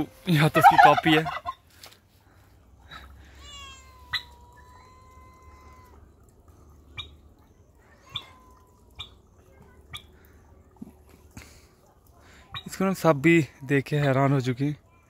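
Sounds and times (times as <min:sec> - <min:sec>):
cat meowing faintly: 0:03.3 - 0:06.1, 0:07.5 - 0:09.8.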